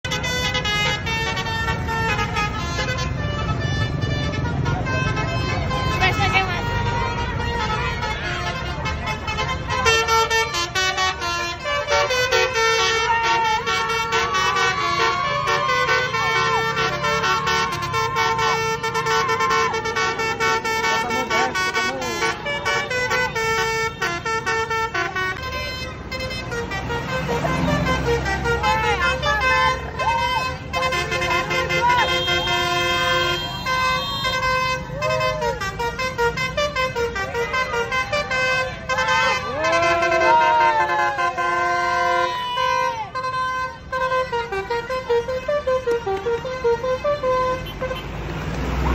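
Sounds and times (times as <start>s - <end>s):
musical bus horn melody: 0.0s - 48.8s
people's voices: 0.7s - 48.9s.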